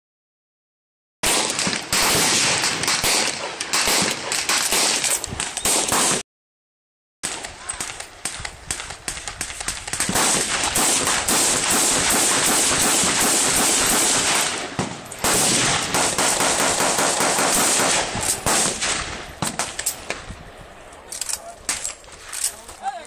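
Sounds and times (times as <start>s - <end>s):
rifle gunfire: 1.2s - 6.2s, 7.2s - 20.2s.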